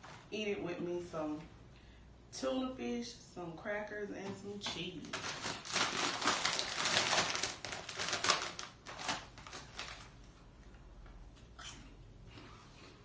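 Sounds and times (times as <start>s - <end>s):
foil snack bag crinkling: 5.0s - 10.2s.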